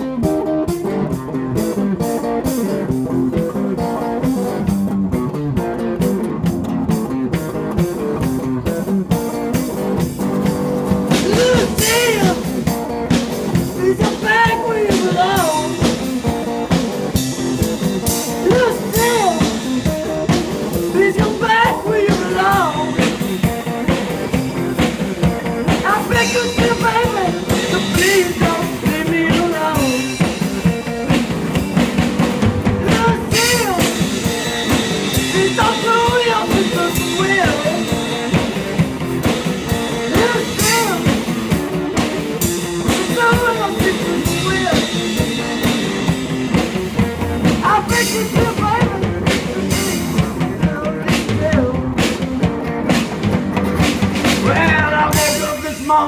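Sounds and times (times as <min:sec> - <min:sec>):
drum kit: 0:00.0 - 0:56.0
electric guitar: 0:00.0 - 0:56.0
man singing: 0:11.1 - 0:12.6, 0:13.6 - 0:16.0, 0:18.3 - 0:23.2, 0:25.7 - 0:30.4, 0:32.7 - 0:34.1, 0:35.1 - 0:38.2, 0:39.9 - 0:41.3, 0:42.7 - 0:45.2, 0:47.4 - 0:52.4, 0:54.4 - 0:56.0.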